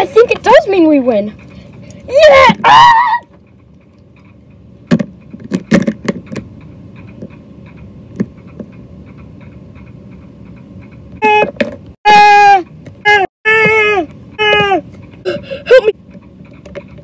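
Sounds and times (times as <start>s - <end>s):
person screeching like dinosaur: 2.1s - 3.3s, 11.2s - 14.8s
plastic toys clicking and tapping: 3.2s - 10.0s, 16.1s - 17.0s.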